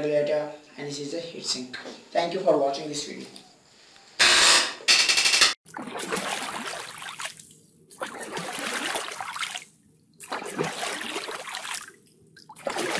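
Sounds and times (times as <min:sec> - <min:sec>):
water splashing and trickling: 0:05.6 - 0:12.9.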